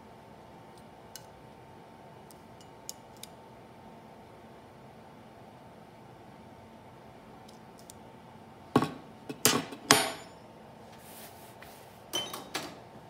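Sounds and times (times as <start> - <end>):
metallic ring: 9.9 - 10.4.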